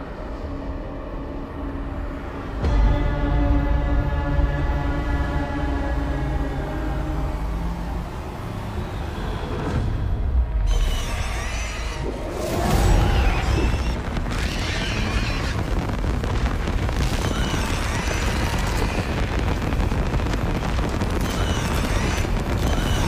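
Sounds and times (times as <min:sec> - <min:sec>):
horror film score: 0:00.0 - 0:23.0
heavy low rumble: 0:12.0 - 0:23.0
booms: 0:12.3 - 0:23.0.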